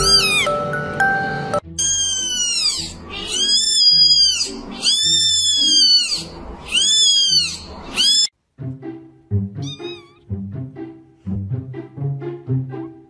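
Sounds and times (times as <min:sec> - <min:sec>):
kitten meowing: 0:00.0 - 0:00.5, 0:01.8 - 0:08.3, 0:09.6 - 0:10.2
background music: 0:00.0 - 0:04.8, 0:08.4 - 0:13.0.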